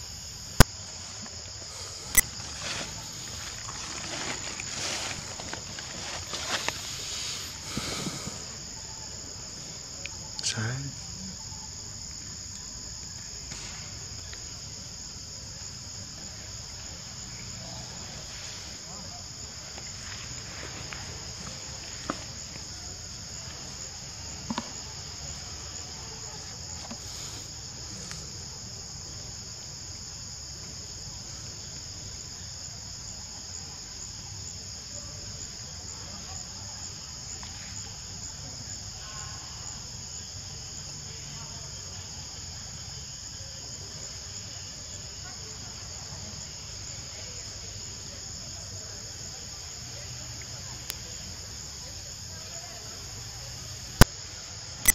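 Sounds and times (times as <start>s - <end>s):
insects shrilling: 0.0s - 28.3s.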